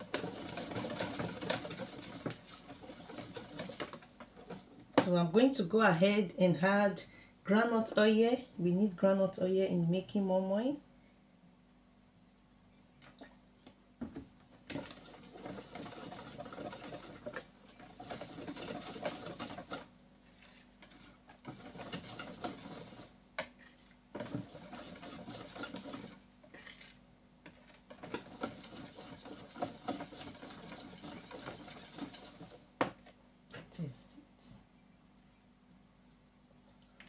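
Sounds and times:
spoon stirring thick batter: 0.0 - 5.1, 13.0 - 33.2.

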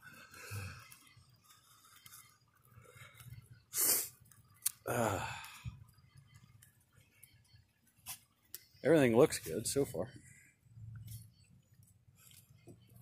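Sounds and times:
person sighing: 4.8 - 5.7.

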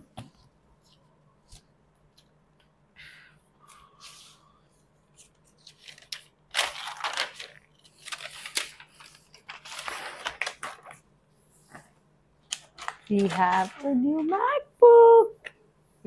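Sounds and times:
paper packaging rustling: 5.1 - 11.1, 12.4 - 14.6.

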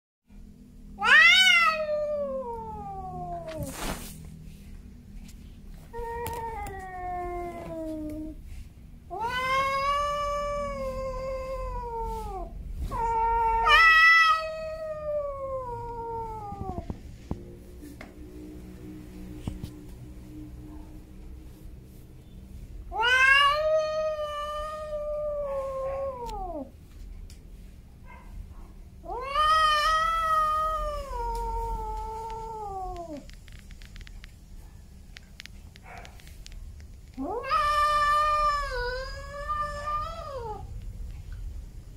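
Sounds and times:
cat yowling: 1.0 - 3.8, 5.9 - 8.4, 9.1 - 16.9, 22.9 - 26.7, 29.0 - 33.3, 37.2 - 40.7.

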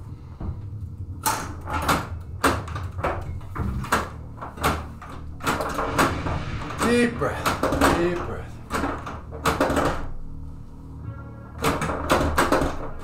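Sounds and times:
low steady hum: 0.0 - 13.0
pinball machine clacks: 1.2 - 10.2, 11.6 - 13.0.

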